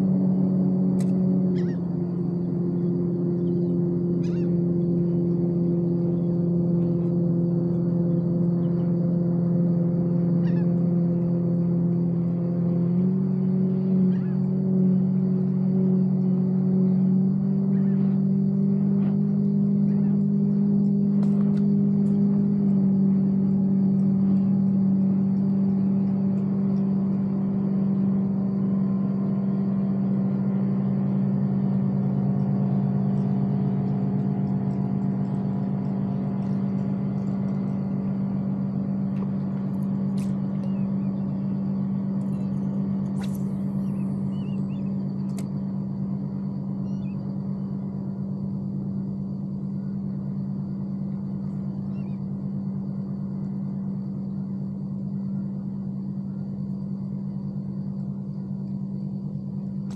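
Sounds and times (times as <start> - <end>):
low motor hum: 0.0 - 59.9
faint sharp clicks: 1.0 - 1.2, 20.8 - 22.2, 45.2 - 45.7.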